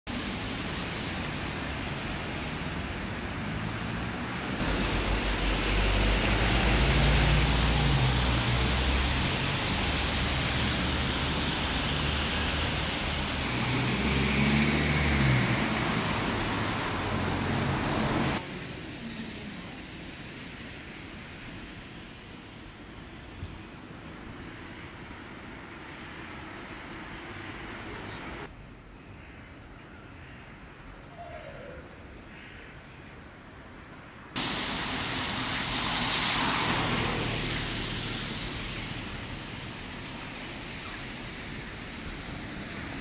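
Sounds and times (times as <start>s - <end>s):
rain hissing: 0.1s - 18.4s, 34.4s - 43.0s
cars passing on wet road: 0.1s - 18.9s, 24.4s - 28.5s, 34.3s - 43.0s.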